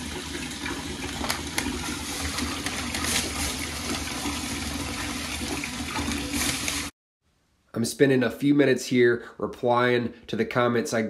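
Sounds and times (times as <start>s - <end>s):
faucet running into tub: 0.0s - 6.9s.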